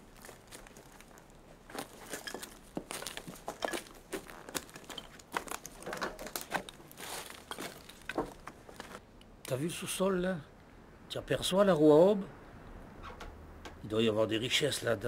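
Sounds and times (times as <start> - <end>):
clothes rustling: 0.0 - 9.0
scuffing: 0.0 - 9.0
small irregular knocks: 0.1 - 9.0.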